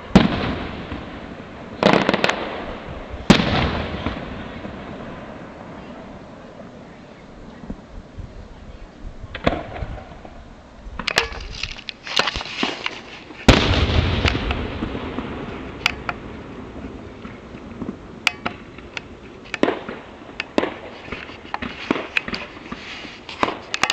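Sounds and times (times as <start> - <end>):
loud firework boom: 0.0 - 5.0, 13.5 - 16.8
fireworks popping and banging: 0.0 - 5.8, 11.0 - 23.9.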